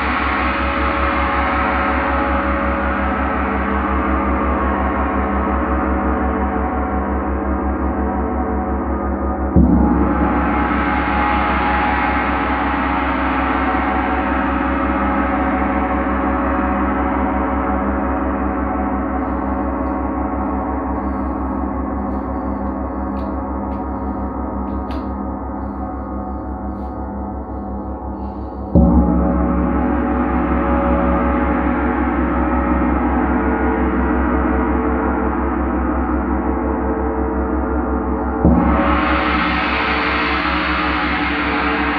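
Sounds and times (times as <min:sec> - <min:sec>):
gong struck with padded mallet: 0:28.7 - 0:33.4.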